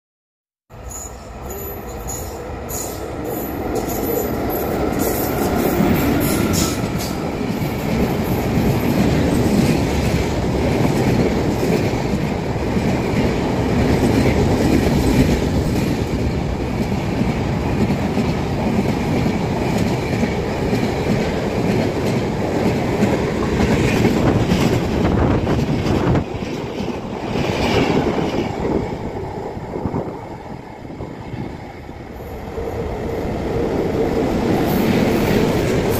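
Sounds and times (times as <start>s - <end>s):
train wheels rushing on rail: 0.7s - 35.9s.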